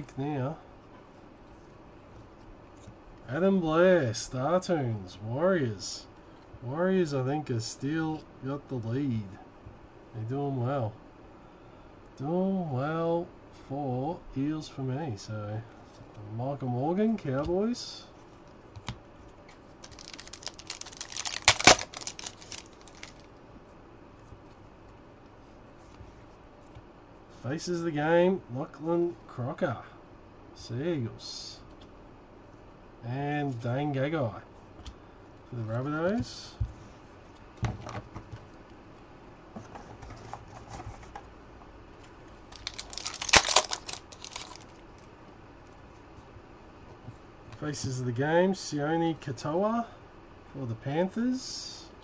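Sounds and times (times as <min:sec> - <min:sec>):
cards clicking: 0:19.8 - 0:23.2, 0:42.6 - 0:44.7
foil pack tearing and crinkling: 0:19.8 - 0:23.3, 0:42.5 - 0:44.8.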